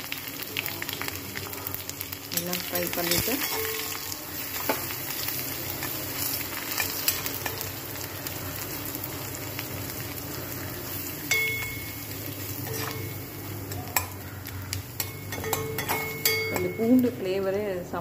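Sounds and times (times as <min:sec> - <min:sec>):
spices sizzling in hot oil: 0:00.0 - 0:18.0
metal spatula scraping pan: 0:12.6 - 0:13.2.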